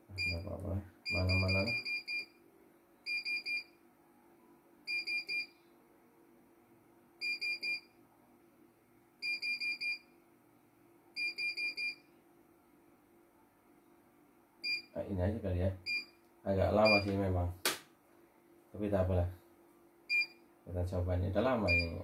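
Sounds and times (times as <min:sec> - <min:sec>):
high key beeps: 0:01.1 - 0:02.3, 0:16.8 - 0:17.1, 0:21.7 - 0:22.0.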